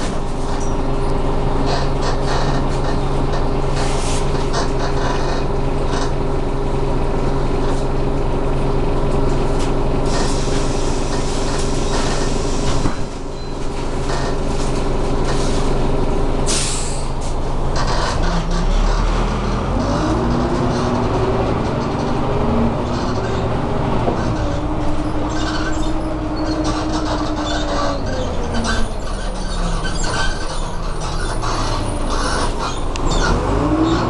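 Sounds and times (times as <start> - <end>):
bus diesel engine running: 0.0 - 34.0
short hiss of air: 16.5 - 17.1
interior rattles: 17.5 - 33.3.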